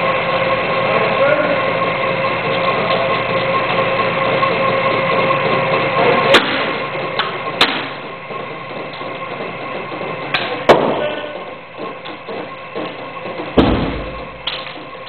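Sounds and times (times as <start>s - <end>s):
steady mechanical hum: 0.0s - 15.0s.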